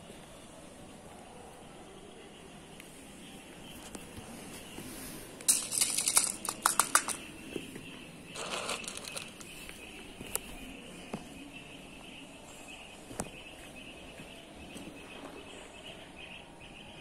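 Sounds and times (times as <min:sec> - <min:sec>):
plastic crinkling and clicking: 0:05.4 - 0:07.3, 0:08.4 - 0:10.5.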